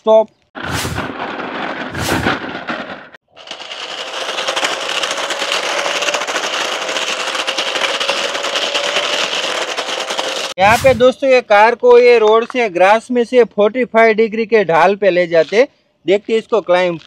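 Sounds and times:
rapid rattling clatter: 1.0s - 10.6s
toy car motor whine: 3.3s - 10.6s.

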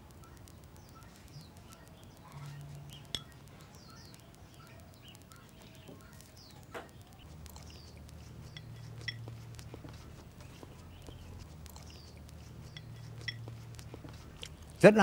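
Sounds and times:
small birds chirping: 0.0s - 15.0s
chopsticks clinking on porcelain bowl: 8.4s - 10.0s, 12.6s - 14.5s.

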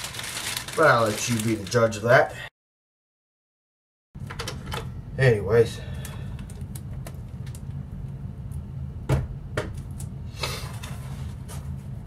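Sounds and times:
packing rustling: 0.0s - 2.0s
steady low hum: 4.2s - 12.0s.

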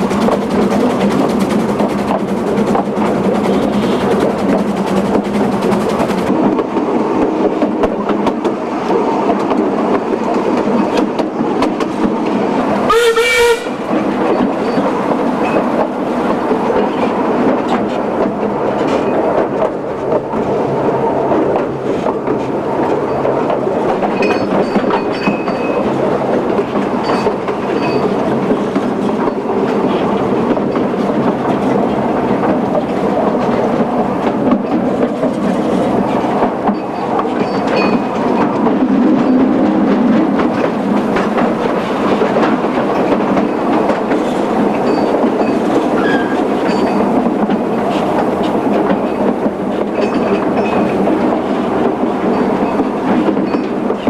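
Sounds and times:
steam train rumble and clatter: 0.0s - 54.0s
steam whistle blast: 12.9s - 13.8s.

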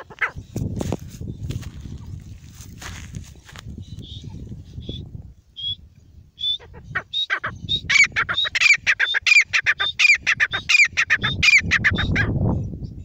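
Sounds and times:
francolin calling: 3.8s - 12.3s.

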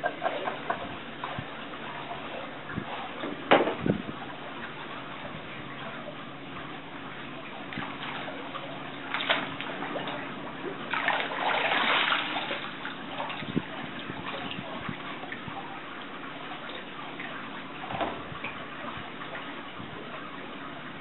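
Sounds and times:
swim fins splashing in water: 7.6s - 15.4s.

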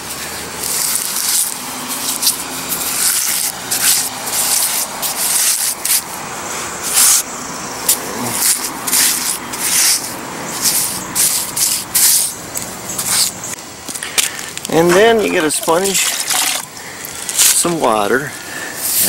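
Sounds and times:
trowel scraping concrete: 0.6s - 6.1s, 8.2s - 12.4s, 14.7s - 16.7s.

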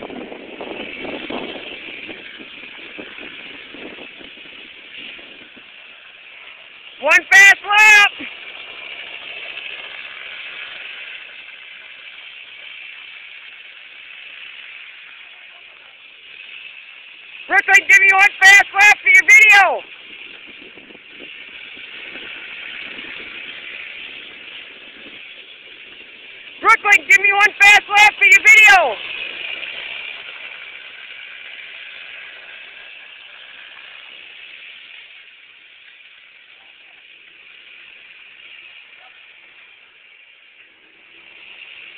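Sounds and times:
small kart engine droning: 8.1s - 17.6s, 19.8s - 26.7s, 28.9s - 41.9s.

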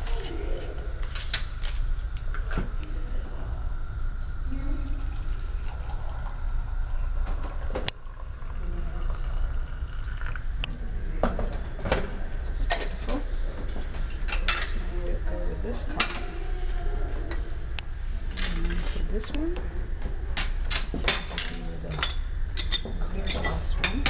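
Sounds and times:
water pouring into teapot: 4.4s - 10.6s.

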